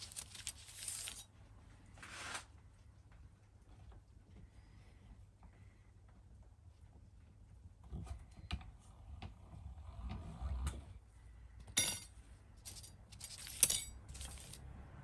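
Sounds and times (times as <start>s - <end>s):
jingling metal clatter: 11.8s - 14.6s.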